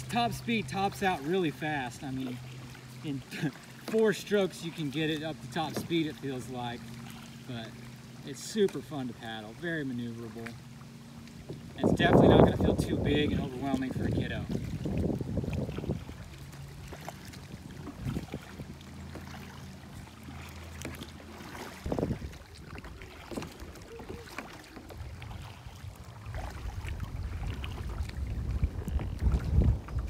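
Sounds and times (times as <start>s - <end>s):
paddle splashing and dripping: 0.0s - 30.0s
wind rumble on microphone: 11.5s - 18.9s, 21.8s - 24.3s, 24.9s - 30.0s.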